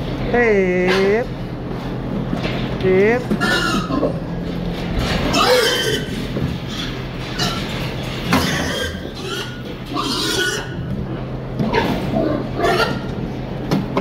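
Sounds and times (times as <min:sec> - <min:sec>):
steady low hum: 0:00.0 - 0:14.0
pigs squealing and grunting: 0:03.4 - 0:04.2, 0:05.2 - 0:10.9, 0:11.6 - 0:13.2.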